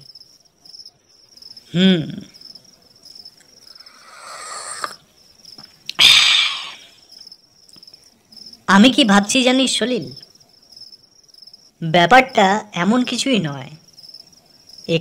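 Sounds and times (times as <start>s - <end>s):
crickets chirping: 0.0s - 15.0s
loud breathy hiss: 3.7s - 5.0s, 6.0s - 7.1s.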